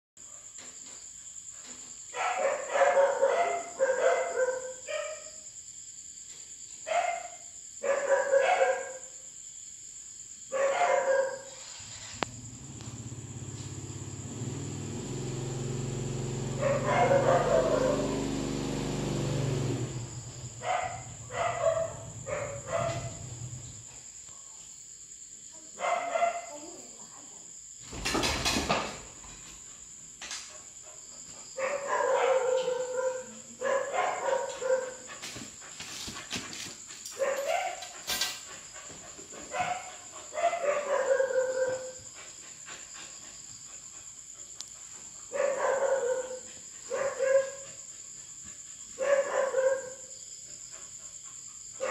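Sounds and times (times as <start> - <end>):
loud brief scraping: 11.5 - 12.2.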